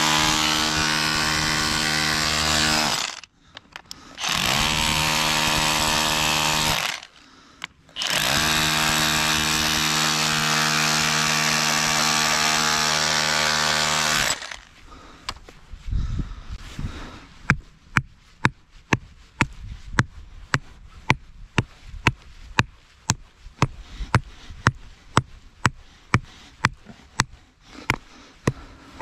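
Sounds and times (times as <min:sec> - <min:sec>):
breaker hammer chiselling rock: 0:17.4 - 0:29.0.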